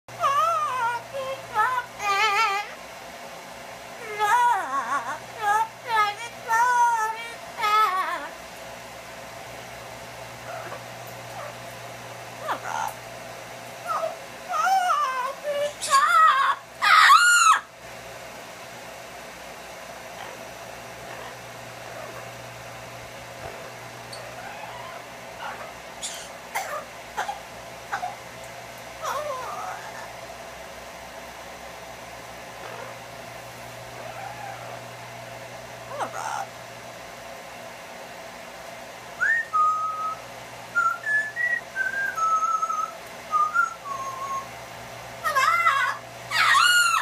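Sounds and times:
parrot squawks: 10.5s - 11.6s, 12.4s - 13.0s, 13.8s - 17.7s, 20.2s - 22.4s, 23.4s - 28.2s, 29.0s - 30.2s, 32.6s - 33.0s, 33.9s - 34.8s, 35.9s - 36.5s, 45.2s - 47.0s
parrot whistles: 39.2s - 44.5s.

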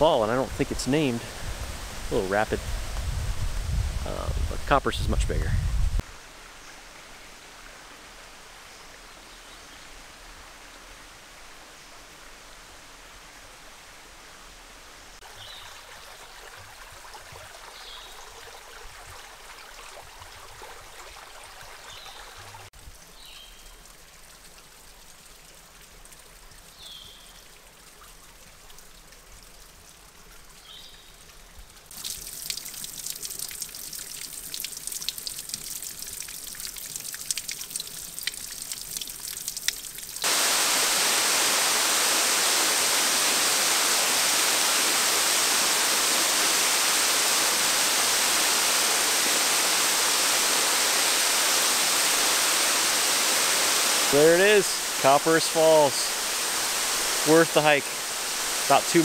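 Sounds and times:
waterfall rushing: 0.0s - 2.7s, 40.2s - 59.0s
creek water running: 0.0s - 59.0s
water splashing and dripping: 15.2s - 59.0s.

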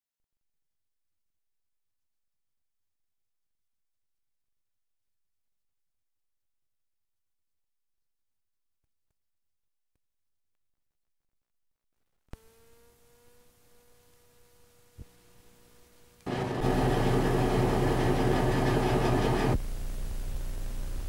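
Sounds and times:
low hum: 13.8s - 21.0s
static hiss: 19.5s - 21.0s.

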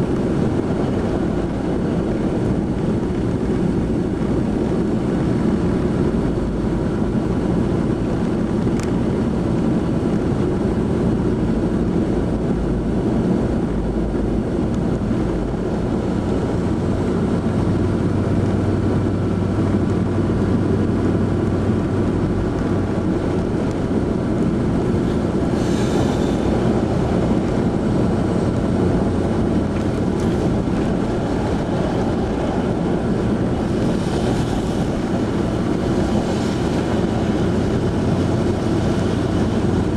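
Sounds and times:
car engine and tyres on snow: 0.0s - 39.9s.

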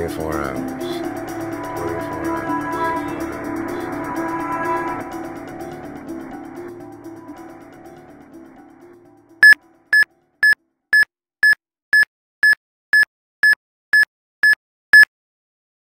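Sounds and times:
background music: 0.0s - 10.4s
short electronic beeps: 9.4s - 15.1s.

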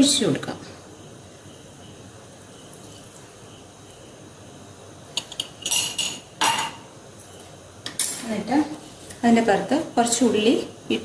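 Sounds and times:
faint steady hiss: 0.0s - 11.0s
dishes and utensils clinking: 5.1s - 8.3s.

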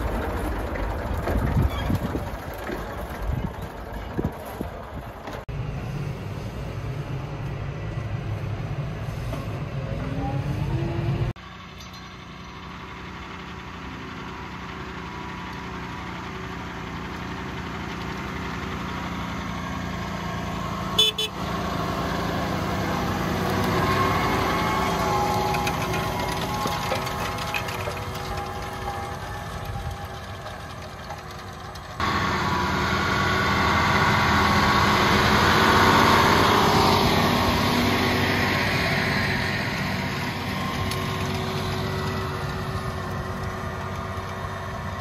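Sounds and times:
tractor diesel engine under load: 0.0s - 45.0s.

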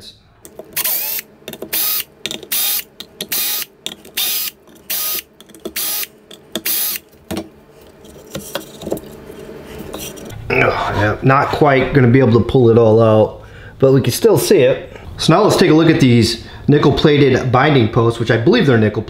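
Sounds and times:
cordless drill running: 0.8s - 7.0s.

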